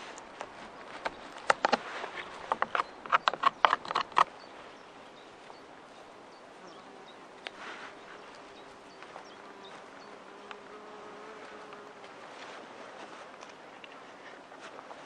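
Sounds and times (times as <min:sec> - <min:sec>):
handling rustle: 0:00.0 - 0:05.6, 0:07.4 - 0:10.0, 0:11.4 - 0:15.0
outdoor ambience: 0:00.0 - 0:15.0.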